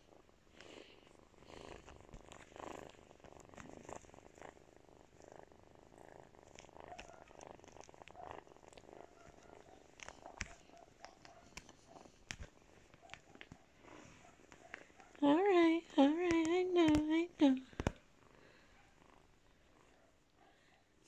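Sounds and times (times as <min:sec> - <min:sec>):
kitten purring: 0:00.0 - 0:21.0
small clicks: 0:06.5 - 0:13.6, 0:16.2 - 0:18.0.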